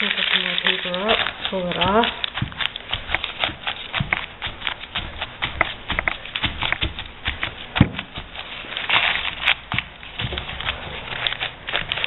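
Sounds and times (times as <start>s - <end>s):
crumpled paper dabbing paint: 0.0s - 12.0s.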